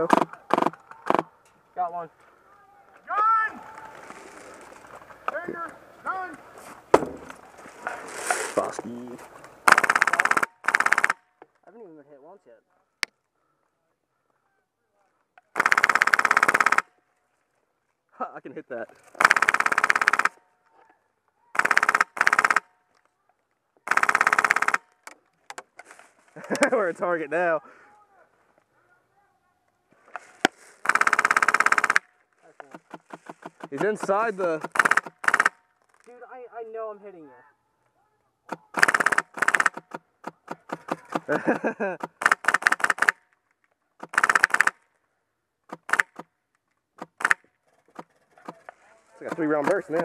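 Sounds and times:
airsoft machine gun bursts: 0:09.7 - 0:11.2, 0:15.6 - 0:16.9, 0:19.2 - 0:20.4, 0:21.6 - 0:22.7, 0:23.9 - 0:24.9, 0:30.8 - 0:32.0, 0:32.7 - 0:35.6, 0:38.5 - 0:43.2, 0:44.0 - 0:44.8, 0:45.7 - 0:46.3, 0:47.0 - 0:47.4.

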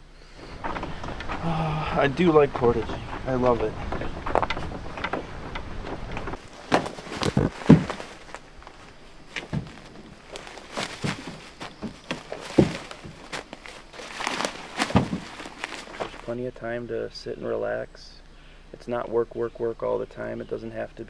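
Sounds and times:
footsteps on forest trail: 0:00.4 - 0:16.4
canoe knocking and thumping: 0:00.5 - 0:16.3.

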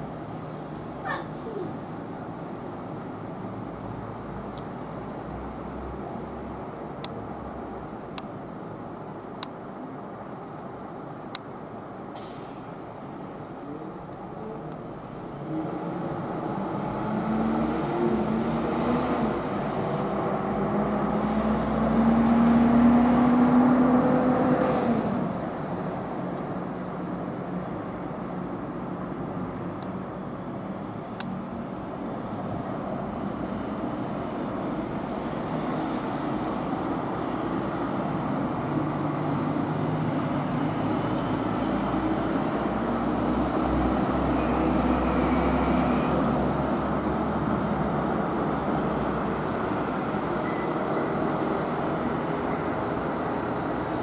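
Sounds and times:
road traffic rumble: 0:00.0 - 0:54.0
vehicle engine accelerating: 0:15.2 - 0:25.8.

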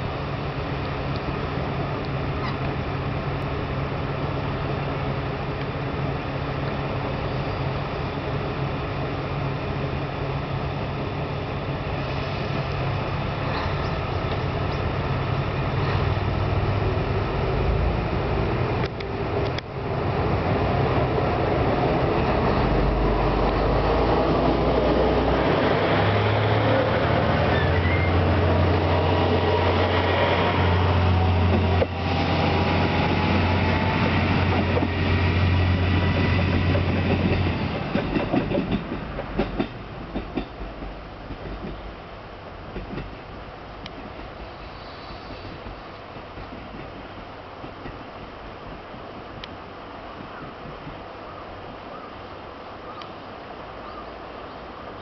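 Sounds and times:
diesel railcar engine droning: 0:00.0 - 0:55.0
train wheels clicking over rail joints: 0:31.4 - 0:42.0, 0:42.7 - 0:51.2.

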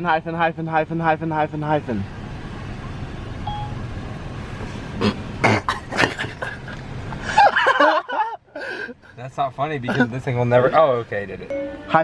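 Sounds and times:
low rumble inside vehicle cab: 0:00.0 - 0:12.0
person speaking: 0:11.5 - 0:12.0.

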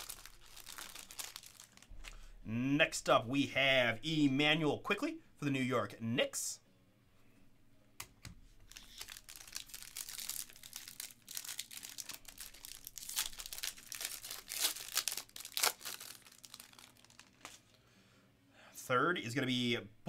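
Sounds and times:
foil wrapper crinkling: 0:00.0 - 0:02.2, 0:08.7 - 0:17.8.

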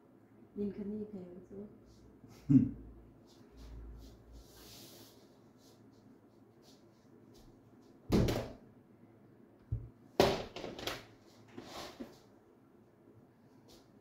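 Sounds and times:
objects knocking and thudding: 0:08.1 - 0:08.6, 0:09.7 - 0:11.1.

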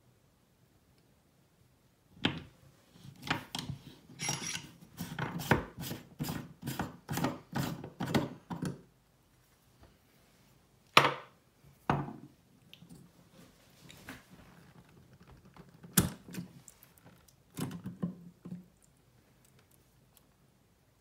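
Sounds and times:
metal tap parts scraping and clicking: 0:03.6 - 0:04.7.

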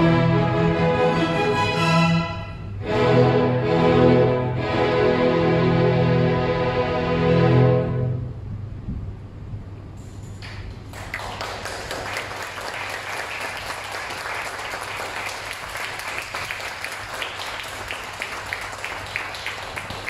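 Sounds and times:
string orchestra final chord: 0:00.0 - 0:08.4
audience applause: 0:10.8 - 0:20.0.

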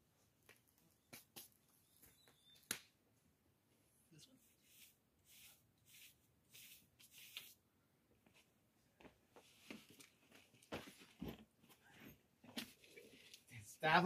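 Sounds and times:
faint rustles and scuffs: 0:08.2 - 0:13.0.

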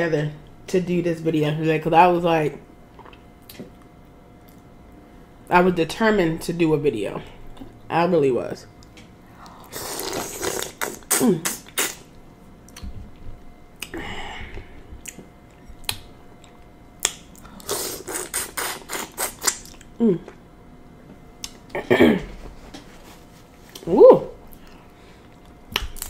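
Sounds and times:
wet mouth smacks and clicks: 0:10.4 - 0:12.0, 0:15.8 - 0:17.5, 0:18.1 - 0:19.9, 0:25.7 - 0:26.0.

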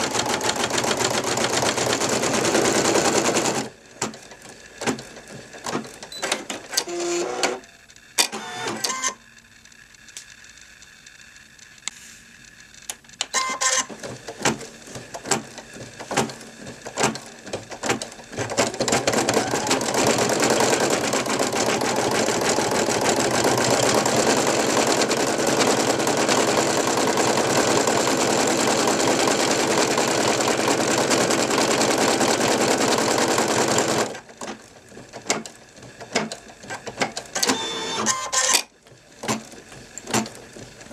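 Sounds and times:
embroidery machine stitching: 0:00.0 - 0:07.6, 0:13.2 - 0:40.9.

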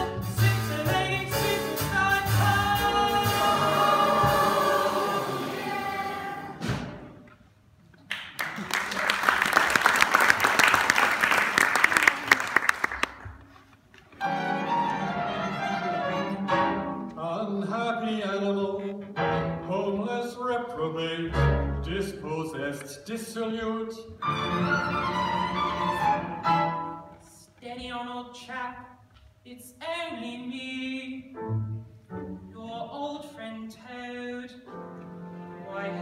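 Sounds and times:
audience applause: 0:08.1 - 0:13.4
violin and cello playing: 0:14.2 - 0:17.1, 0:34.9 - 0:36.0.

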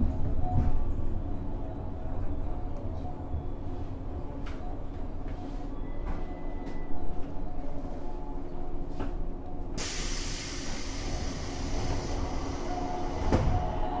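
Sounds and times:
train motor low rumble: 0:00.0 - 0:14.0
loud hiss: 0:09.8 - 0:13.2.

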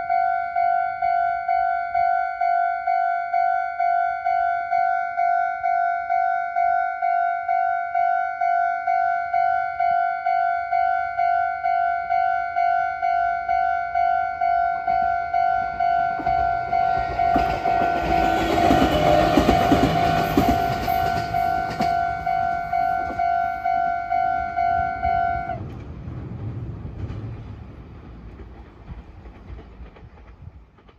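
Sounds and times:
level crossing warning bell: 0:00.0 - 0:25.6
train rumble: 0:14.4 - 0:30.9.

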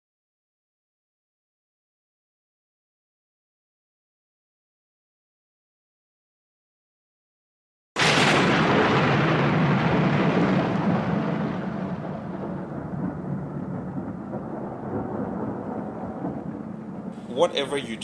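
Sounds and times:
thunder crack and rumble: 0:08.0 - 0:18.0.

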